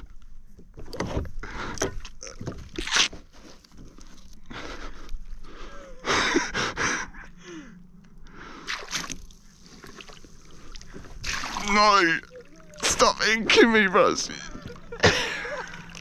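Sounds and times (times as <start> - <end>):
squid squirting water: 8.7 - 16.0.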